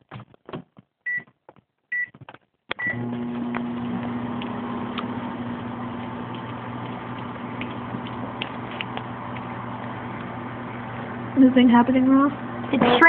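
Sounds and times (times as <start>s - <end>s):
microwave keypad beeps: 2.8s - 3.0s
microwave oven humming: 2.8s - 13.0s.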